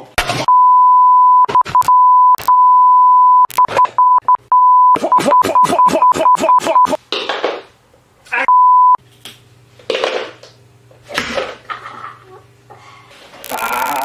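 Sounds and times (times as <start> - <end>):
censor bleep tone: 0.5 - 5.4, 8.5 - 9.0
man crying out: 13.4 - 14.0.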